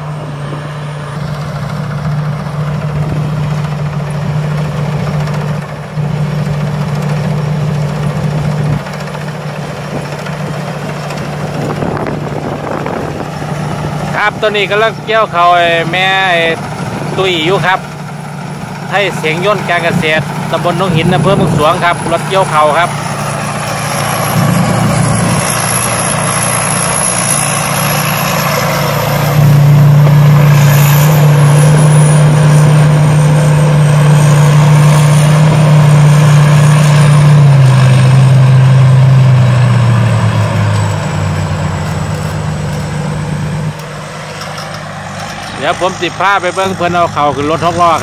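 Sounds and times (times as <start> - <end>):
combine harvester engine running: 0.0 - 48.0.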